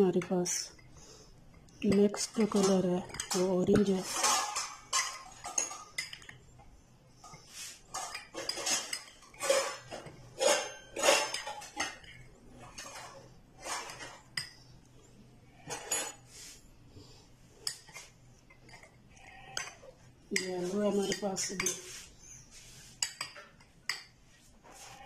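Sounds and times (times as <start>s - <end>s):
spoon clinking and scraping glass bowl: 1.6s - 6.5s, 7.2s - 14.6s, 15.5s - 16.6s, 17.6s - 24.2s.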